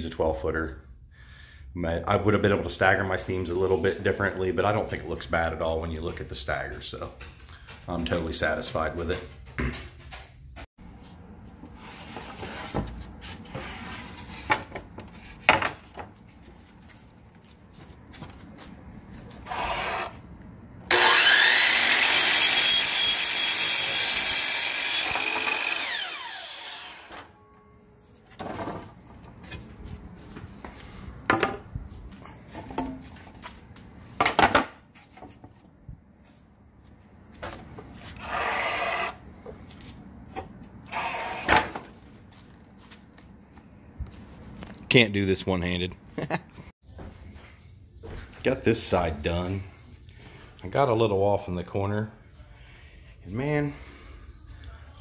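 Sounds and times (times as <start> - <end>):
miter saw whining: 19.4 - 20.2, 20.9 - 27.4.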